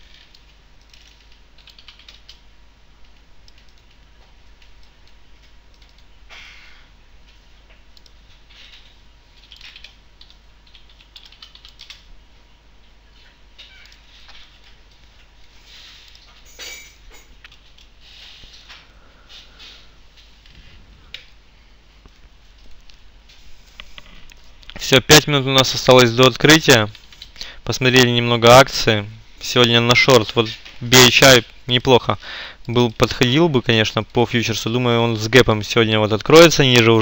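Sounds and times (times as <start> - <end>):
typing on computer keyboard: 0.1 - 2.4, 3.0 - 6.1, 8.0 - 12.1.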